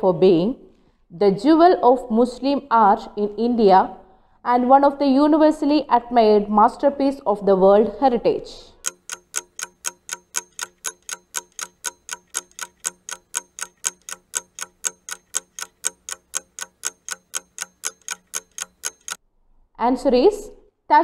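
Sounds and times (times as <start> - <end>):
clock ticking: 8.8 - 19.2.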